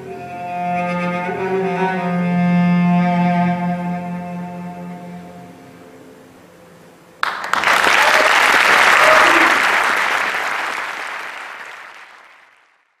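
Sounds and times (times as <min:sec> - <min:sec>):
audience applause: 0:07.2 - 0:13.0.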